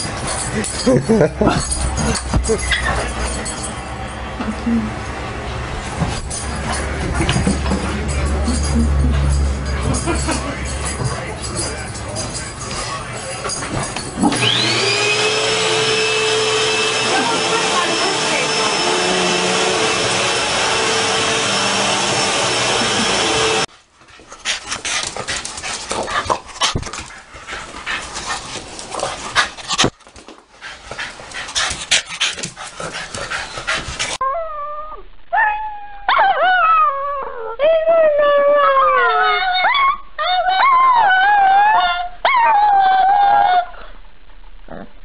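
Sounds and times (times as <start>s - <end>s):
vacuum cleaner running: 14.2s - 23.7s
dog howling: 34.2s - 44.0s.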